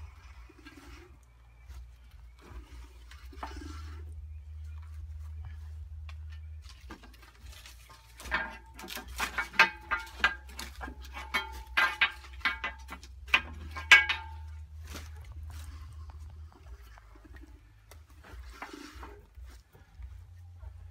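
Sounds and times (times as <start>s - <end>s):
steel bar clanking on metal: 7.9s - 14.8s.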